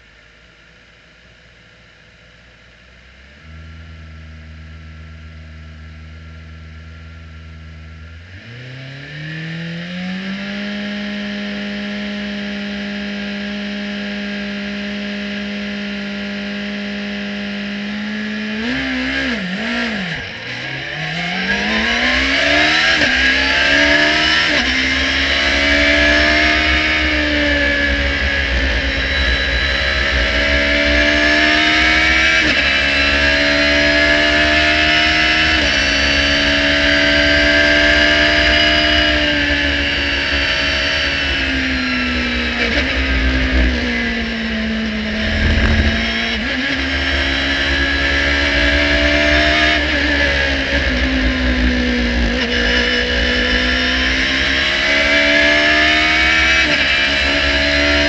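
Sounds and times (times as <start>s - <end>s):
race car engine revving: 15.9s - 58.0s.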